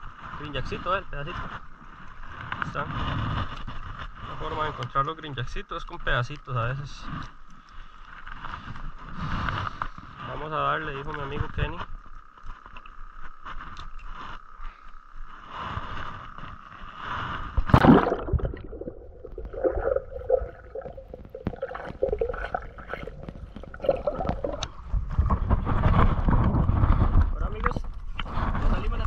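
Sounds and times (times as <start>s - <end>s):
splash into water: 17.6s - 24.8s
water sloshing: 17.6s - 26.4s
muffled underwater bubbling: 17.6s - 28.3s.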